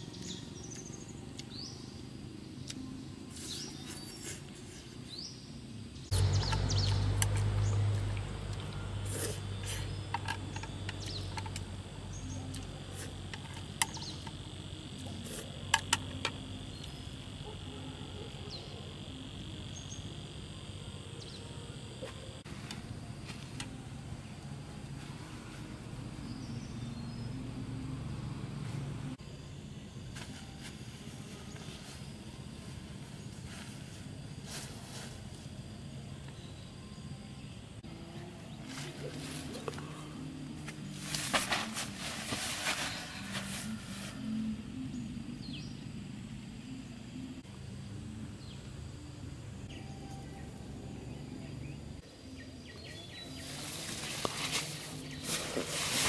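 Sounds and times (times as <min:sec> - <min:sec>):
low hum: 0:05.2 - 0:56.0
low background rumble: 0:05.6 - 0:14.9
light hiss: 0:06.1 - 0:11.7.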